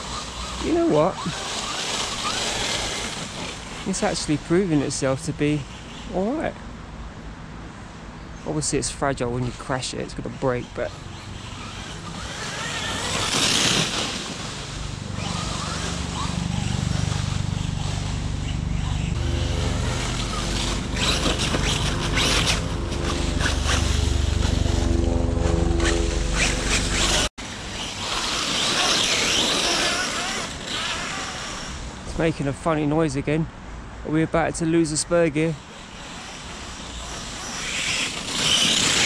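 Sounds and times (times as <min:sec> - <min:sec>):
rc truck motor whine: 0:00.0 - 0:04.9, 0:10.4 - 0:32.1, 0:35.6 - 0:39.0.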